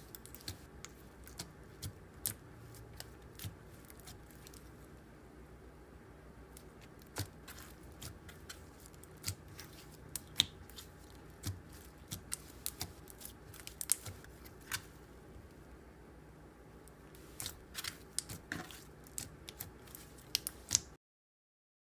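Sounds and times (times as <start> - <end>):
slime clicking and popping: 11.4 - 14.8.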